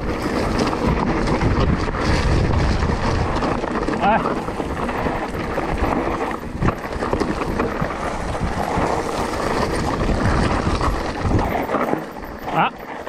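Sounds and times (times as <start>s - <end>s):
bike rattling: 0.0s - 13.0s
tyres crunching over gravel: 0.0s - 13.0s
wind buffeting microphone: 0.0s - 13.0s.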